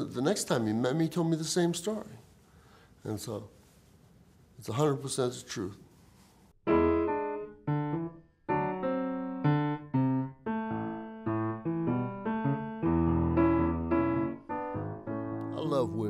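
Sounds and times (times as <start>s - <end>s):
piano chords ringing: 6.7s - 16.0s.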